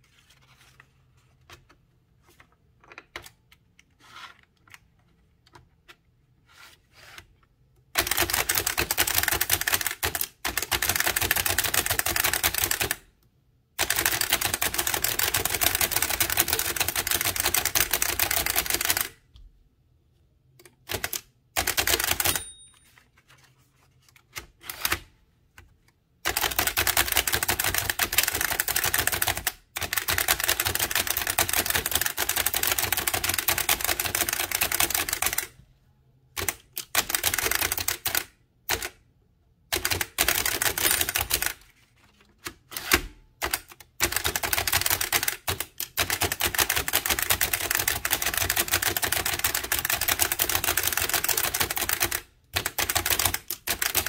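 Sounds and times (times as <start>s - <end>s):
typewriter clattering: 8.0s - 13.0s, 13.8s - 19.1s, 20.9s - 22.6s, 26.3s - 35.4s, 39.8s - 41.6s, 42.7s - 54.0s.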